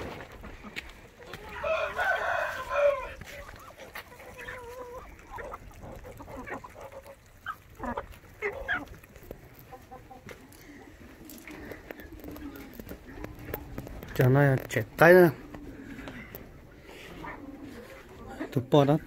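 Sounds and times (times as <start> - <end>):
chickens clucking: 0.0 - 19.0
rooster crowing: 1.6 - 3.3.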